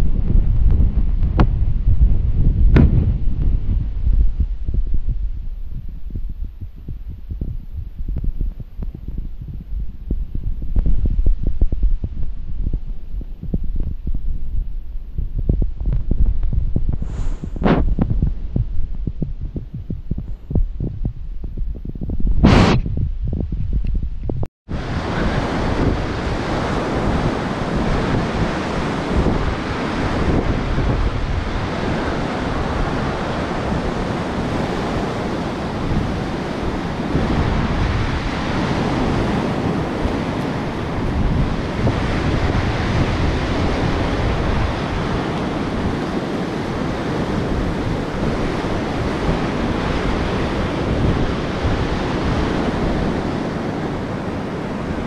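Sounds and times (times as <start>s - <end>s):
wind buffeting microphone: 0.0s - 55.0s
surf washing onto sand: 24.7s - 55.0s.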